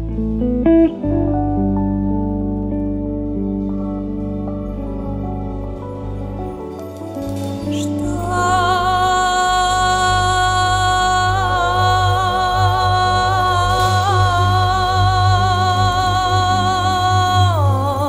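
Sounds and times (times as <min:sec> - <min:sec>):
sustained electric bass: 0:00.0 - 0:06.6
band backing music: 0:00.0 - 0:17.8
woman singing long note: 0:08.0 - 0:18.0.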